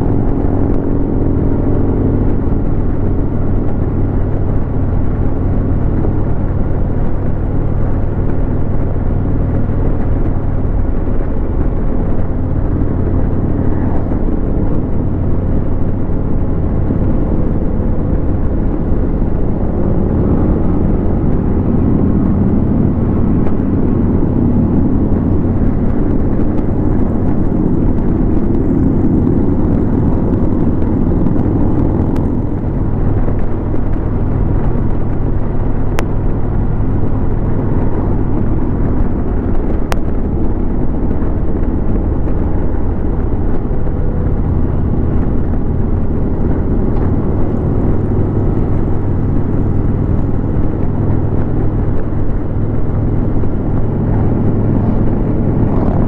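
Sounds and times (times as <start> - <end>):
motorcycle engine cruising: 0.0 - 56.0
wind and road noise: 0.0 - 56.0.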